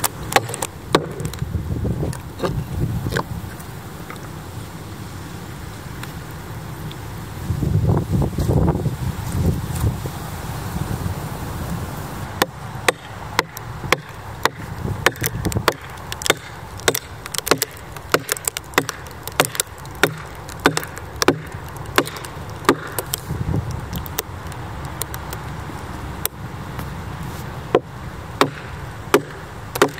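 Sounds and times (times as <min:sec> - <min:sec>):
axe striking log: 0:00.0 - 0:01.4, 0:12.4 - 0:23.2, 0:27.7 - 0:29.9
low wind rumble: 0:00.0 - 0:29.9.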